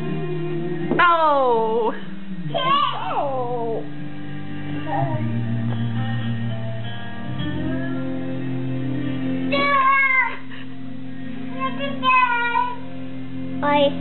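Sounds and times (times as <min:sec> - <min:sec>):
background music: 0:00.0 - 0:14.0
child squealing: 0:02.6 - 0:03.4, 0:09.5 - 0:10.5.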